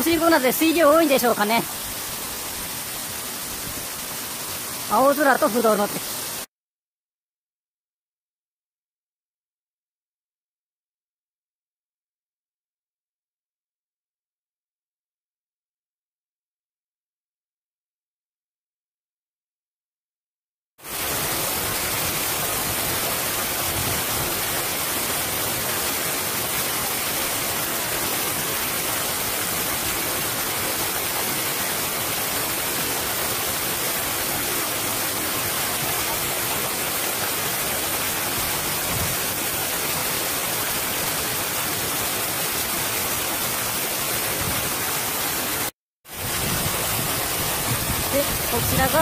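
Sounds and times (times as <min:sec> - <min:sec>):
waterfall rushing: 0:00.0 - 0:06.5, 0:20.8 - 0:49.0.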